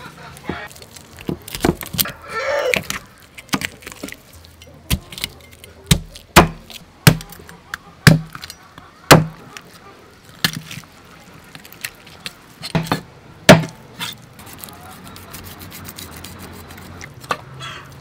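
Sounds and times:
cleaver chopping on wooden block: 0:05.9 - 0:07.4, 0:08.1 - 0:08.4, 0:09.1 - 0:09.4
knife scrape: 0:14.0 - 0:17.3.

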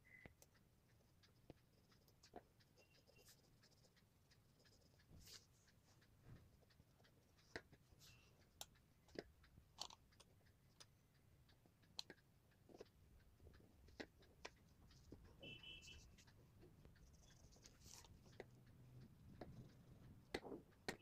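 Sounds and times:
marker pen scratching paper: 0:01.2 - 0:06.0, 0:16.9 - 0:18.4.

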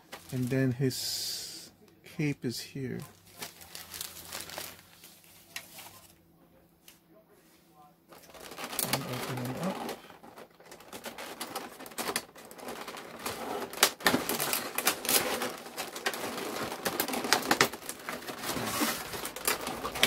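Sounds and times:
plastic tray crackling: 0:08.2 - 0:20.0.

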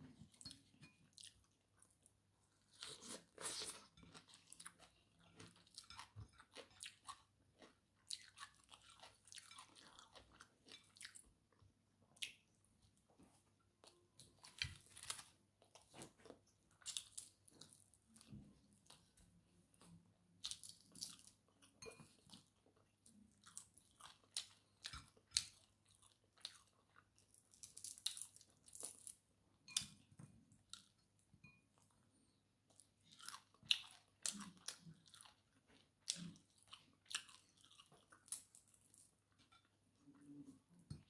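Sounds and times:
chewing with wet mouth clicks: 0:02.8 - 0:11.3, 0:32.7 - 0:41.0.

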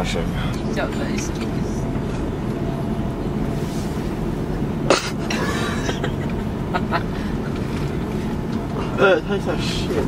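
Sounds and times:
vehicle cabin rumble: 0:00.0 - 0:10.0
person coughing: 0:04.9 - 0:06.2.

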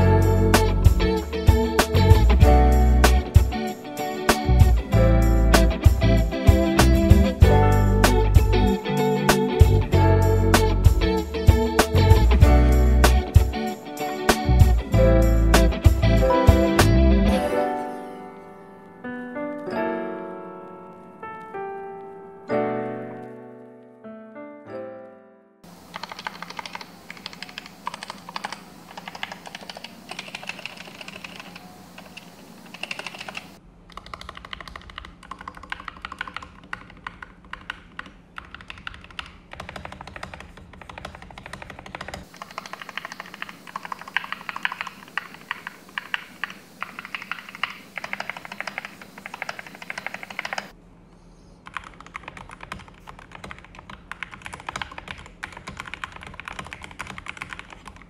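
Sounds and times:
fast mechanical keyboard typing: 0:25.7 - 0:50.7, 0:51.6 - 0:58.0.

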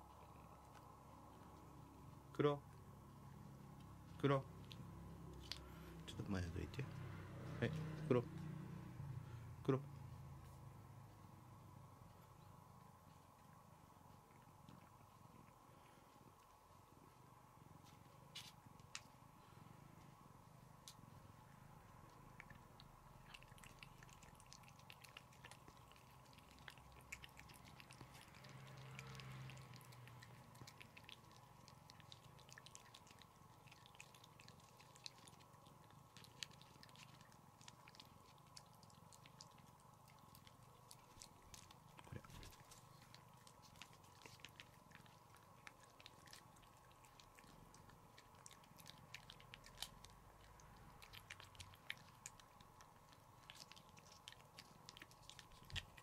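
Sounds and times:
low steady hum: 0:00.0 - 0:56.0
cat licking wet clicks: 0:22.1 - 0:56.0.

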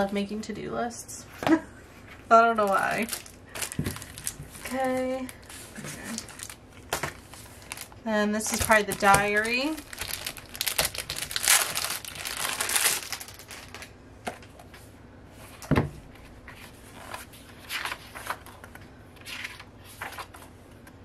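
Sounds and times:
packaging crinkling and rustling: 0:02.6 - 0:14.6.

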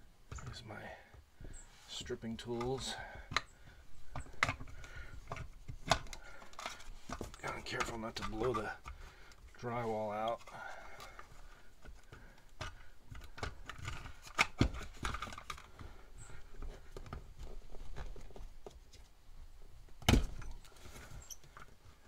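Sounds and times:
wire strippers clicking and scraping: 0:01.9 - 0:18.4.

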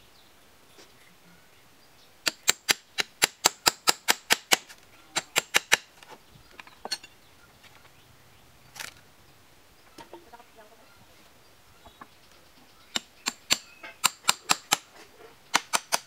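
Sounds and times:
hammer driving nails into timber: 0:02.2 - 0:05.9, 0:12.9 - 0:14.9, 0:15.5 - 0:16.0.

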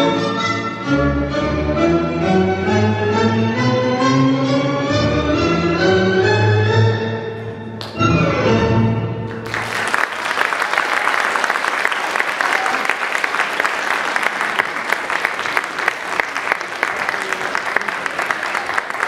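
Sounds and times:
audience applauding: 0:09.3 - 0:19.0.

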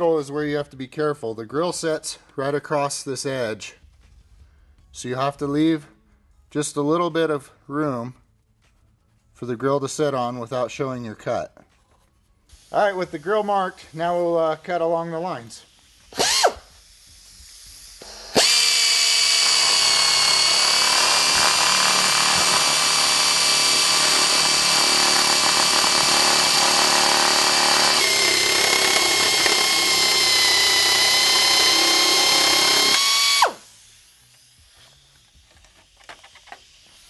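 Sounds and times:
air saw cutting plastic: 0:15.5 - 0:37.0.

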